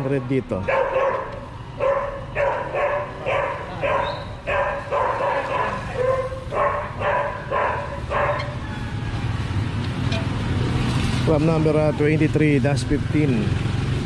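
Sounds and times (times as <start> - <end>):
dog barking: 0.6 - 8.6.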